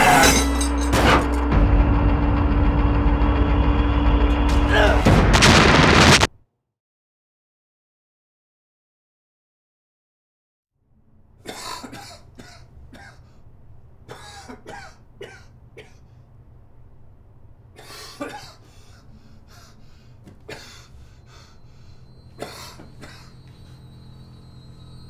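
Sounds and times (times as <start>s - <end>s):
steady low hum: 0.0s - 6.0s, 10.8s - 25.0s
person coughing: 11.5s - 13.3s, 14.1s - 16.1s, 17.8s - 19.0s, 20.4s - 20.9s, 22.4s - 23.4s.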